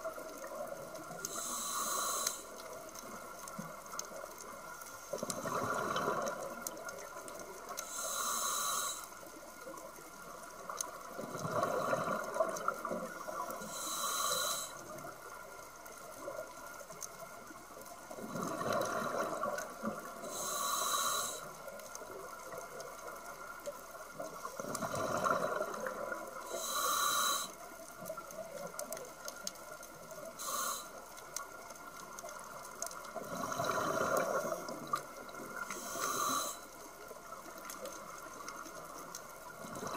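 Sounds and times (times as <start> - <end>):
scuba regulator hissing inhalations: 1.2 - 2.7, 7.8 - 9.2, 13.6 - 14.9, 20.2 - 21.6, 26.5 - 27.6, 30.3 - 31.0, 35.6 - 36.8.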